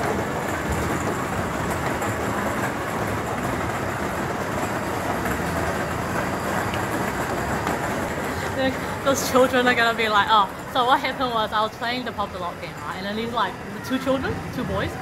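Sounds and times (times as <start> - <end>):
arcade machines din: 0.0 - 15.0.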